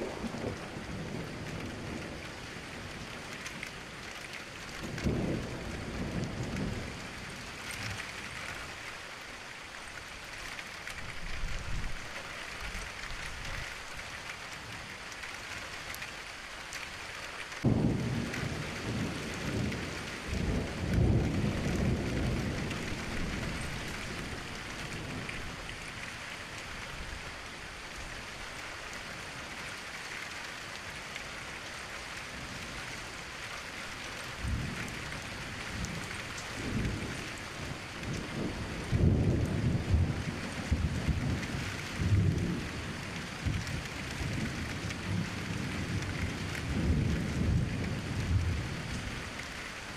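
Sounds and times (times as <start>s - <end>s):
rolling thunder: 0.0s - 2.3s, 17.6s - 25.4s, 38.1s - 48.8s
steady rain: 0.0s - 49.9s
sharp thunderclap: 17.6s - 23.6s.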